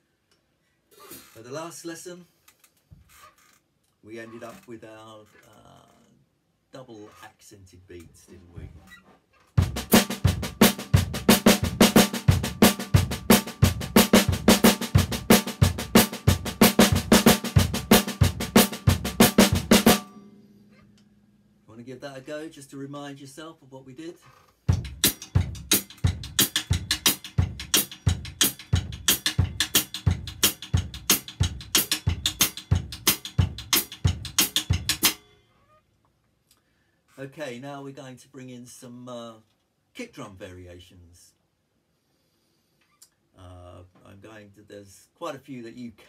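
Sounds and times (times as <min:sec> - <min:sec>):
drum kit beat: 0:09.6 - 0:20.5, 0:24.7 - 0:35.3.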